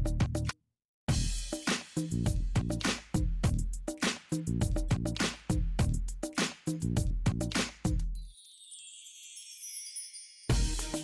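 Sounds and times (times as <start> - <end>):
background music with beat and bass: 0.0 - 0.5, 1.1 - 8.2, 10.5 - 11.0.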